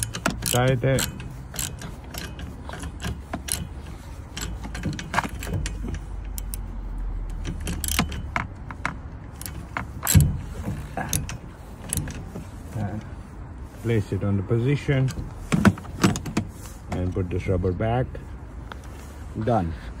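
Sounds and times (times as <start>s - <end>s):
socket ratchet clicking: 0.0s - 6.7s, 7.3s - 12.2s.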